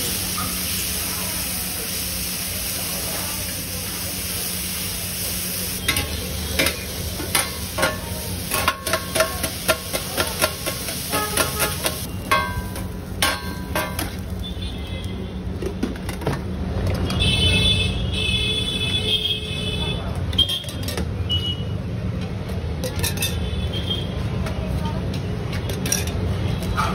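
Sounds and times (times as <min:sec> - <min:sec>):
food sizzling: 0:00.0 - 0:15.4
street traffic: 0:00.0 - 0:26.9
metal scraper clanking on griddle: 0:05.8 - 0:14.2.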